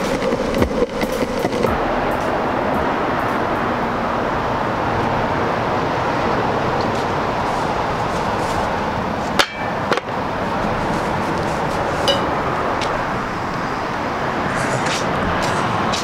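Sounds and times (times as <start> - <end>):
steady rushing noise: 0.0 - 16.0
longboard knocking on metal rack: 9.4 - 10.1, 12.1 - 12.4.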